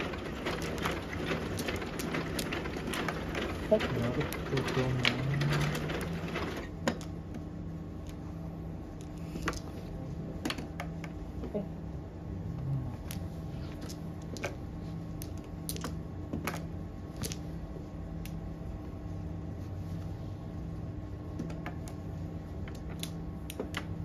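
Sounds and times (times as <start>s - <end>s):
mahjong tiles clicking: 0.0s - 7.1s
steady low hum: 0.0s - 24.0s.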